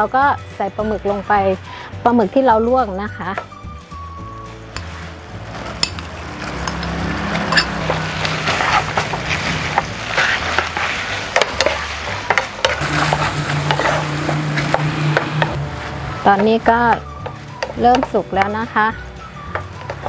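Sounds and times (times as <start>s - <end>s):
wooden spatula scraping pan: 4.8s - 18.8s
squid sizzling in frying pan: 4.9s - 16.2s.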